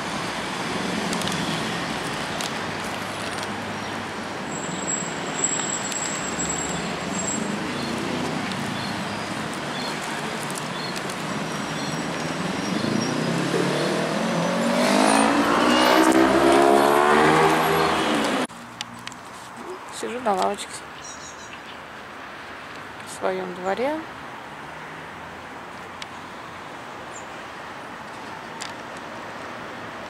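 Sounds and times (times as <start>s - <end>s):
city road traffic: 0.0s - 30.0s
car accelerating past: 12.4s - 18.5s.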